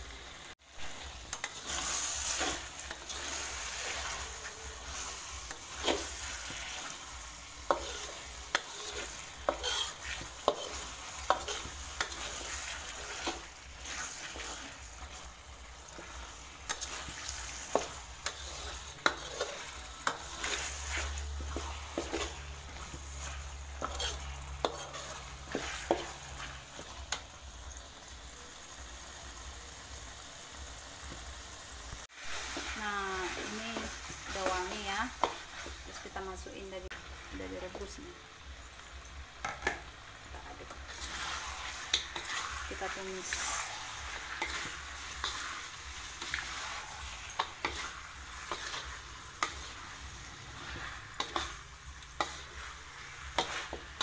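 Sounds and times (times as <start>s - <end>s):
paste sizzling in oil: 0.0s - 54.0s
spatula scraping a wok: 0.3s - 28.8s, 32.1s - 38.1s, 39.4s - 54.0s.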